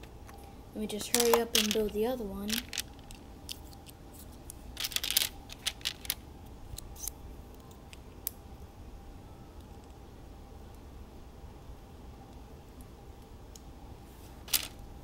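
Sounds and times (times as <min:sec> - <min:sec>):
plastic bricks clicking together: 0:01.1 - 0:04.0, 0:04.8 - 0:06.2, 0:14.5 - 0:14.8.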